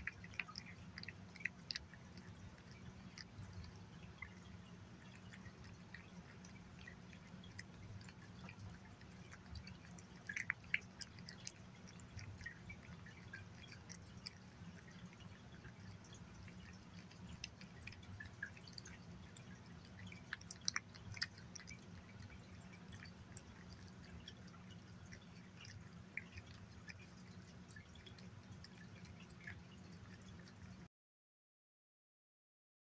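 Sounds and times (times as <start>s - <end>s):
cat licking and chewing food: 0.0s - 30.9s.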